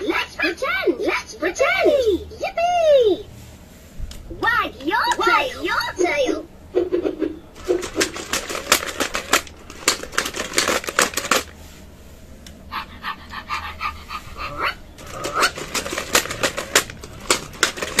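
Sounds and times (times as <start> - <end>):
plastic toy legs clattering: 7.6 - 11.6, 15.0 - 18.0
electronic dog barks: 12.7 - 15.6.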